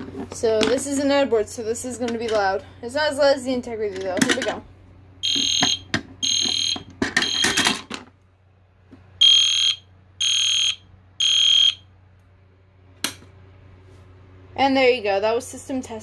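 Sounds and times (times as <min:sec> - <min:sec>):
fire alarm horn blasts: 0:05.2 - 0:07.6, 0:09.2 - 0:11.9.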